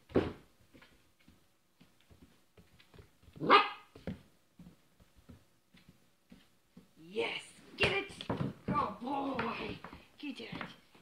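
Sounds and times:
puppy barking: 0:03.4 - 0:04.0.

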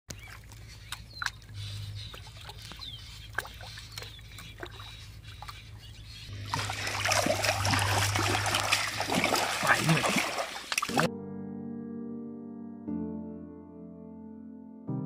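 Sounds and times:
water splashing and dripping: 0:00.1 - 0:11.1.

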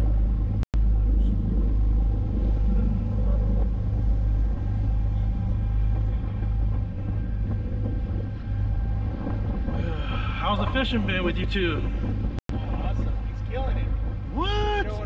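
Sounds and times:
boat engine drone: 0:00.0 - 0:15.0.

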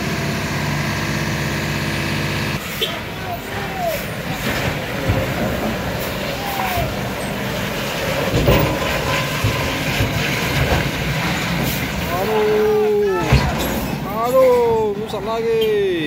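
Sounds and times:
diesel truck engine running: 0:00.0 - 0:16.0
truck jolting knocks: 0:03.3 - 0:14.9.

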